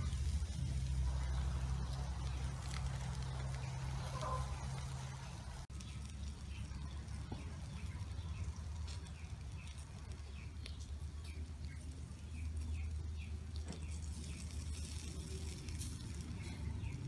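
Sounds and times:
small bird chirping: 0.0 - 17.0
steady low rumble: 0.0 - 17.0.

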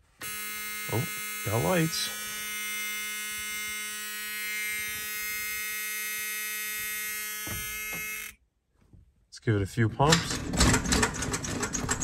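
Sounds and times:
dashboard warning buzzer: 0.2 - 8.4.

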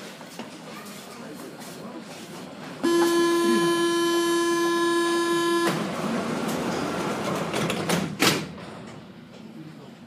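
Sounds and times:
door warning buzzing tone: 2.8 - 6.0
train doors sliding shut: 5.5 - 9.5.

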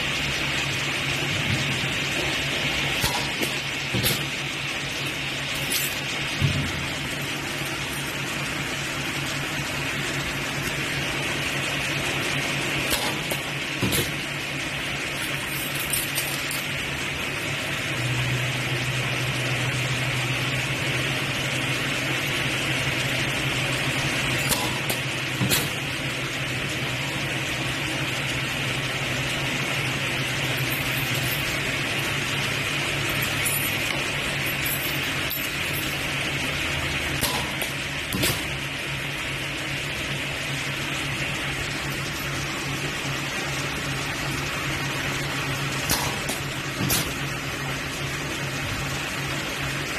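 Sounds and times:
welding machine humming: 0.0 - 49.9.

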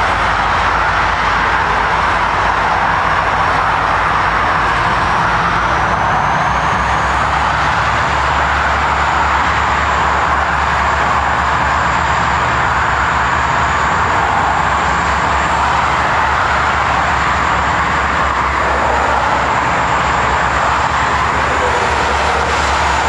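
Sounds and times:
diesel locomotives rumbling: 0.0 - 23.0
highway traffic noise: 0.0 - 23.0.

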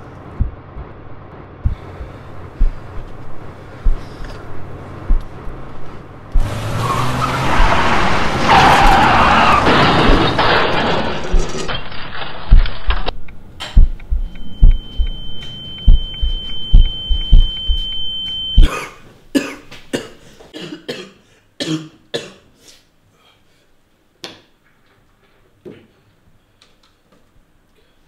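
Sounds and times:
deep thumps: 0.3 - 6.5, 9.5 - 13.0, 13.7 - 18.7
high ringing tone: 14.1 - 18.7
man coughing: 18.6 - 22.5.

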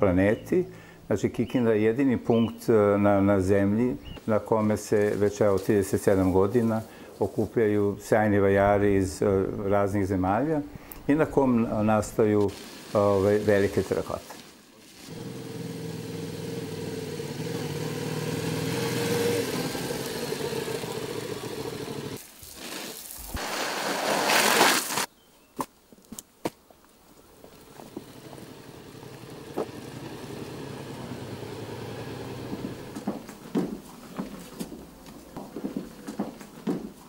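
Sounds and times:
motorcycle engine running: 15.1 - 22.2, 27.5 - 33.2.

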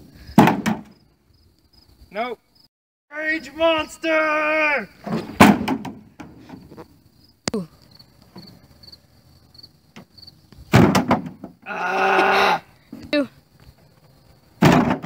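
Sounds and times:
insects chirping: 0.0 - 15.0
plastic bucket thudding on grass: 0.4 - 1.0, 5.0 - 6.7, 10.7 - 11.6, 14.6 - 15.0
person yelling: 3.1 - 5.0, 11.6 - 13.3.

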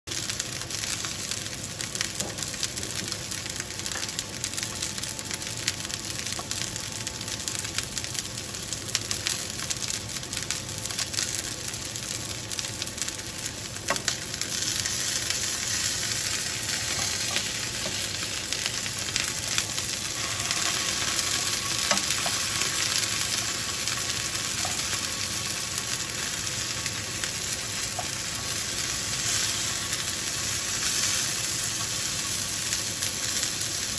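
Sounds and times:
chicken sizzling in hot oil: 0.1 - 33.9.

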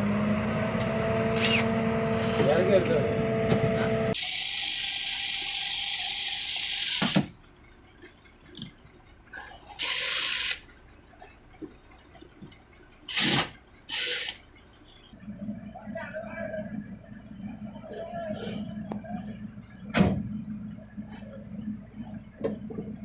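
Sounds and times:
cordless drill boring into plastic: 1.4 - 1.7, 4.2 - 7.3, 9.8 - 10.6, 13.1 - 14.4.

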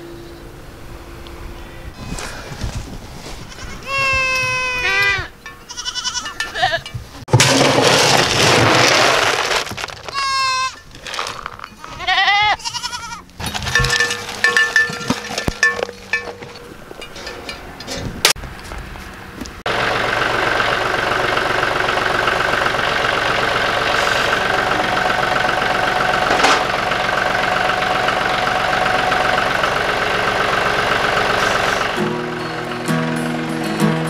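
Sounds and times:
goats bleating: 3.4 - 6.9, 10.1 - 10.8, 11.7 - 13.3
clattering: 6.4 - 12.0, 13.4 - 18.4, 26.2 - 26.8.

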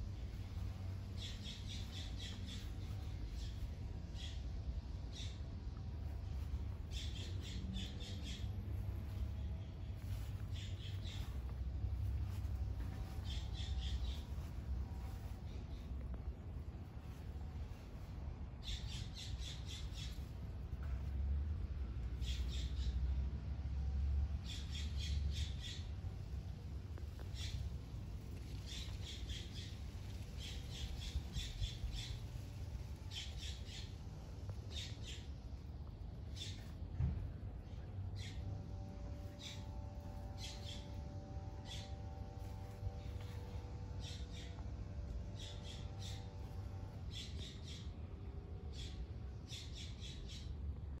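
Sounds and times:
steady low rumble: 0.0 - 51.0
bird chirping: 0.2 - 4.5, 5.1 - 16.1, 18.6 - 20.9, 22.2 - 23.0, 27.2 - 35.6, 37.6 - 48.0, 48.6 - 50.6.

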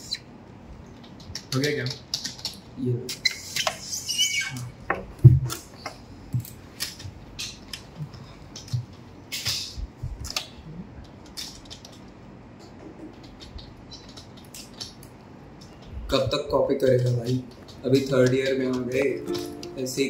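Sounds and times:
keyboard and mouse clicking: 0.9 - 2.7, 10.2 - 16.0, 16.9 - 19.7.

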